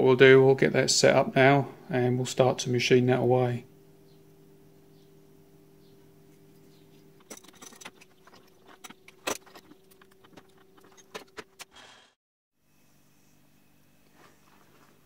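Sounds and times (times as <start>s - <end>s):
steady low hum: 0.0s - 11.8s
metal tools clinking and tapping: 6.6s - 11.5s.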